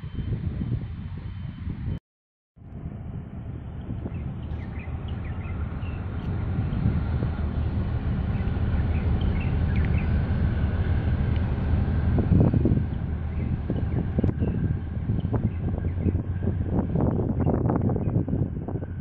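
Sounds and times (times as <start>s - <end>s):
large ship engine rumble: 2.6s - 19.0s
birds chirping: 3.8s - 11.8s, 12.6s - 16.4s.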